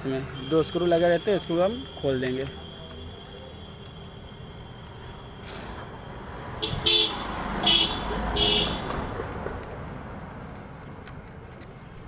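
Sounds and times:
passing traffic rumble: 0.0 - 12.0
vehicle horn toots: 6.6 - 8.9.

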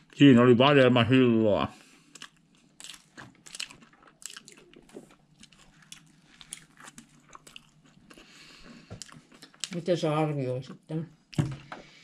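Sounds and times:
person chewing: 1.8 - 9.8.

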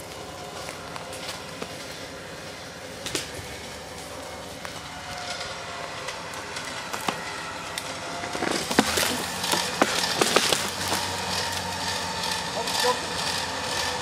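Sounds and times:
winch mechanical hum: 0.0 - 14.0
wood cracking and snapping: 4.6 - 11.7.

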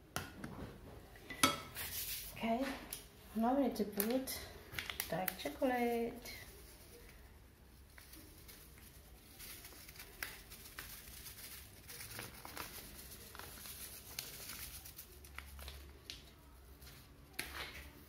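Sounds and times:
powder rustling through metal sieve: 1.8 - 2.8, 5.0 - 18.0.

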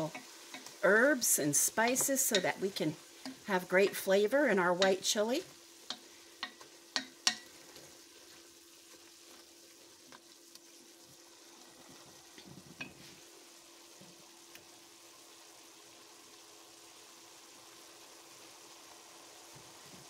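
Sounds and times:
chicken sizzling in a pot: 0.0 - 20.0
wooden spoon clicking against pot: 1.9 - 2.6, 5.9 - 7.5.

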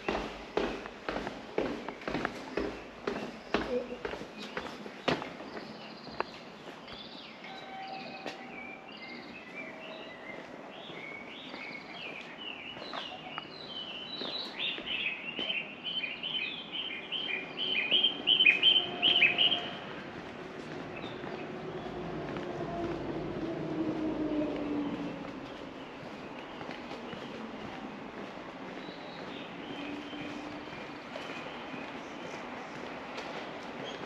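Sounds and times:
songbirds chirping and singing: 0.0 - 20.2, 20.8 - 34.0.

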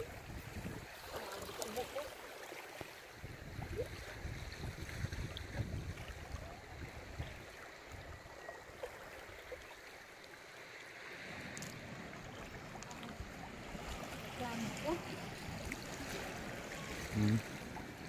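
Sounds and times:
wind buffeting microphone: 0.0 - 1.1, 3.2 - 8.2
water trickling among rocks: 0.0 - 18.0.

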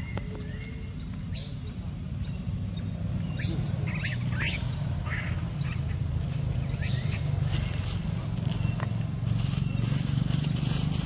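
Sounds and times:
high-pitched animal calls: 3.3 - 7.8.

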